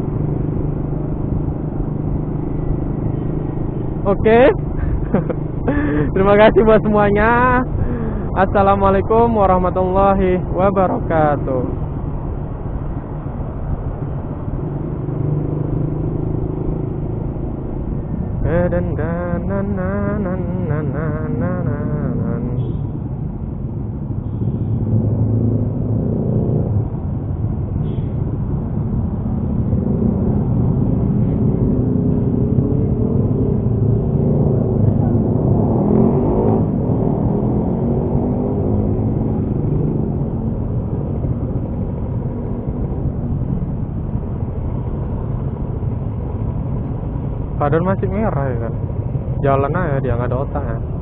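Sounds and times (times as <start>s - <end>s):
motorcycle engine cruising: 0.0s - 9.2s, 9.8s - 51.0s
road and traffic noise: 0.0s - 51.0s
motorcycle engine revving: 14.2s - 23.1s, 29.3s - 43.4s
person chanting: 18.4s - 22.9s.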